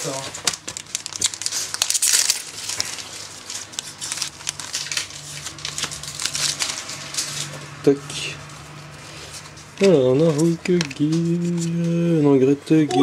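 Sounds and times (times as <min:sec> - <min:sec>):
foil wrapper tearing and crinkling: 0:00.0 - 0:07.5.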